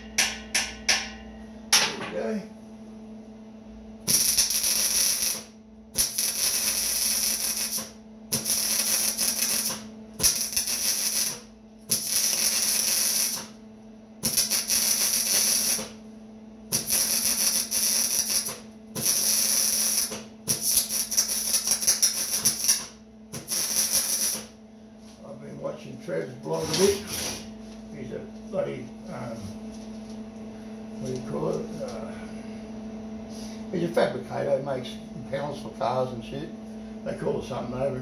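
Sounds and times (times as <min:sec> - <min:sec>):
arc welding crackling: 0:04.0 - 0:13.6, 0:14.2 - 0:16.0, 0:16.7 - 0:24.6.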